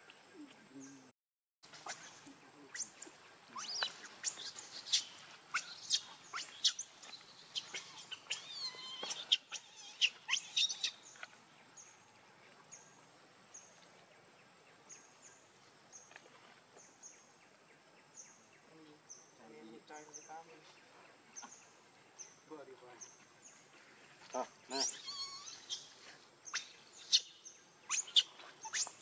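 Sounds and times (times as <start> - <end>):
monkey screaming: 3.6 - 11.0, 24.8 - 27.2.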